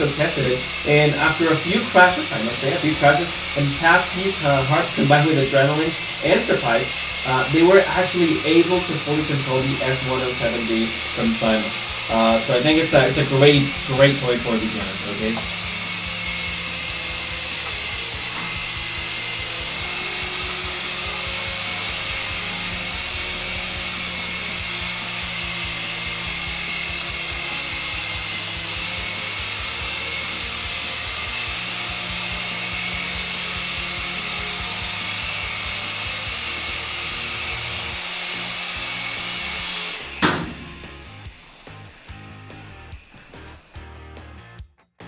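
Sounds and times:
toy helicopter motors whining: 0:00.0 - 0:43.8
faint background music: 0:00.0 - 0:44.5
sharp knock: 0:40.2 - 0:40.9.

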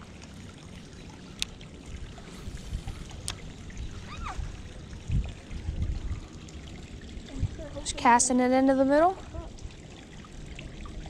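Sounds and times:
creek water trickling: 0:00.0 - 0:11.0
low rumbling on microphone: 0:01.6 - 0:08.4.

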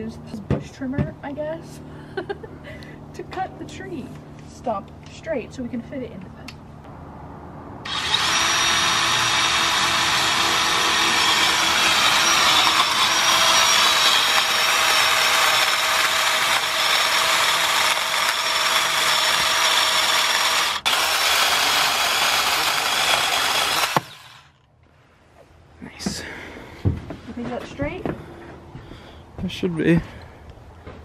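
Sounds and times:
pole saw cutting tree trunk: 0:07.8 - 0:24.7.

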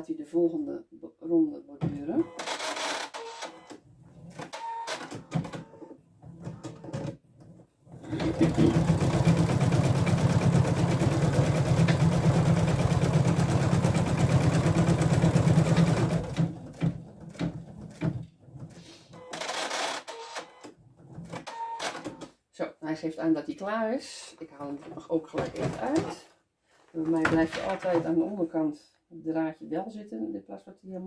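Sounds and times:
embroidery machine stitching: 0:07.9 - 0:18.6.

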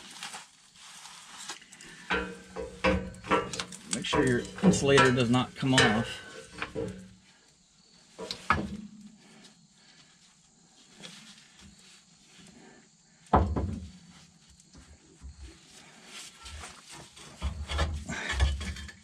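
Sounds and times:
metal knocks and clanks: 0:02.1 - 0:07.2, 0:08.2 - 0:08.9, 0:17.2 - 0:19.0.

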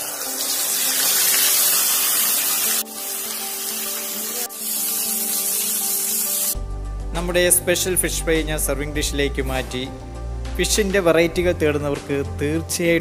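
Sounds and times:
fish deep-frying in hot oil: 0:00.0 - 0:06.6.

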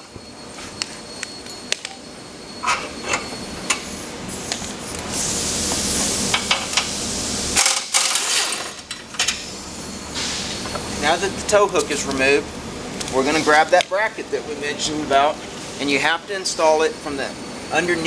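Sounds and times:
hiss: 0:04.0 - 0:07.6, 0:09.5 - 0:10.8.

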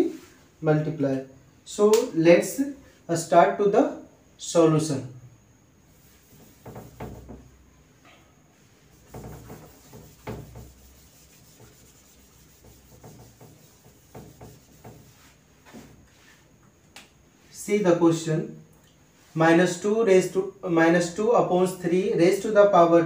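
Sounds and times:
cloth wiping whiteboard: 0:05.9 - 0:07.5, 0:08.5 - 0:16.6.

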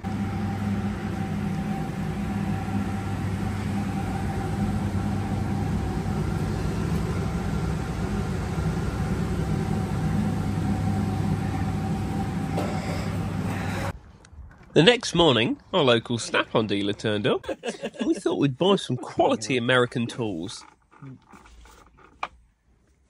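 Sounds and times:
large engine droning: 0:00.0 - 0:14.3
engine whine: 0:00.0 - 0:14.8.

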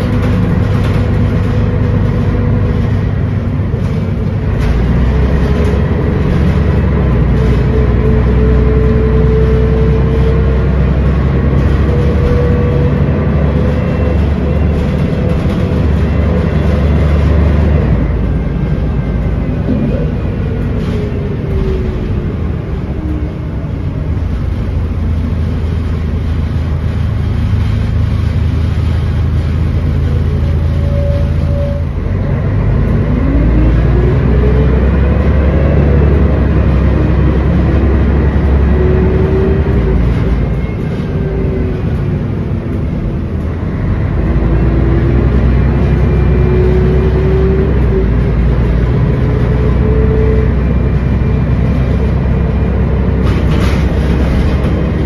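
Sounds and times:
bus diesel engine under load: 0:00.0 - 0:55.0.

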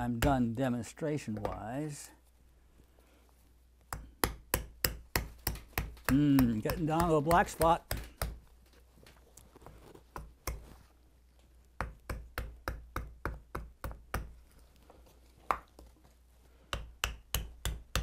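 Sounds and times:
hatchet chopping wood: 0:03.9 - 0:08.4, 0:11.8 - 0:14.4, 0:16.7 - 0:18.0.

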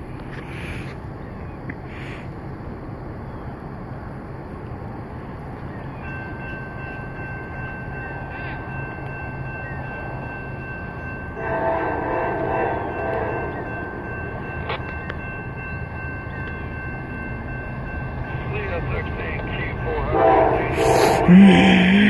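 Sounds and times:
crossing warning bell ringing: 0:05.8 - 0:22.0
locomotive horn blast: 0:11.4 - 0:13.7, 0:19.9 - 0:22.0.

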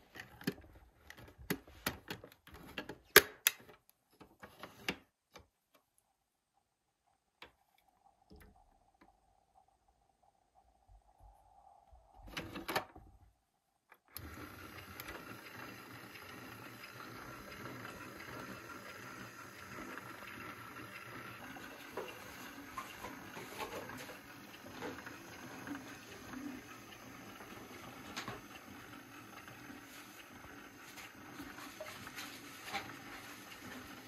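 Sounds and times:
toy washing machine motor hum: 0:14.0 - 0:34.0.

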